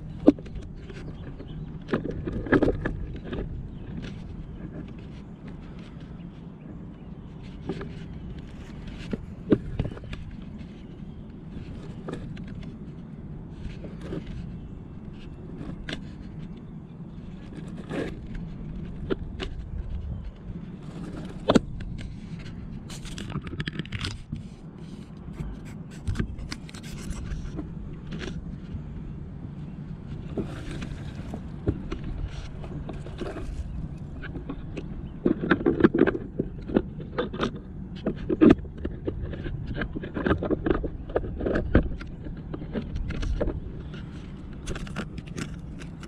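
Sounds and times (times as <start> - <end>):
gear handling scrapes and clicks: 0.0 - 46.0
steady low hum: 0.0 - 46.0.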